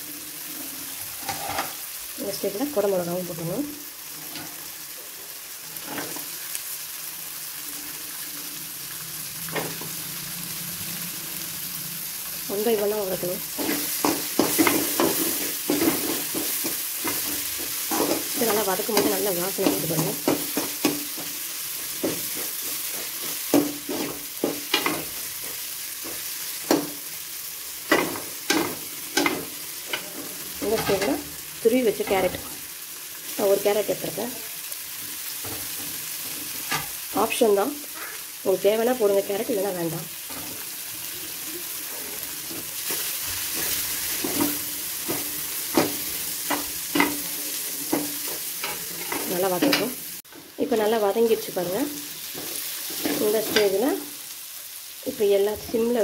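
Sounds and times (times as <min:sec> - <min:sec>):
vegetables sizzling in oil: 0:00.0 - 0:56.0
metal spatula scraping pan: 0:01.1 - 0:01.8, 0:27.9 - 0:31.2, 0:41.8 - 0:49.9
spatula knocking against pan: 0:19.0 - 0:21.4.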